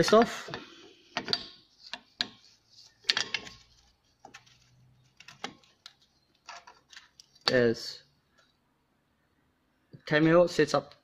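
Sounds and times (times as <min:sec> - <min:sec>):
clicks and taps of tools: 0:00.0 - 0:02.4.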